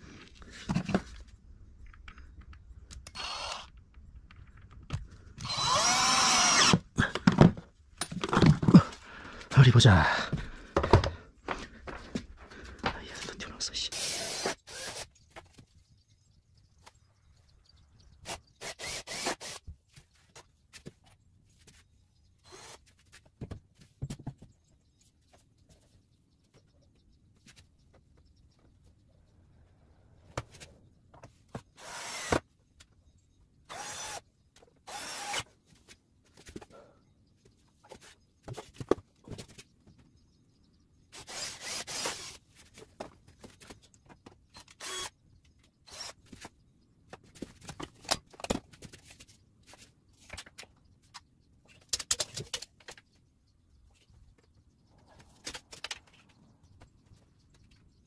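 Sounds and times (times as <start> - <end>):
power drill bursts: 3.1 - 3.7, 5.4 - 6.8, 13.9 - 15.1, 18.6 - 19.6, 31.8 - 32.4, 33.7 - 34.2, 34.9 - 35.4, 41.2 - 42.4, 44.6 - 45.1, 45.9 - 46.2.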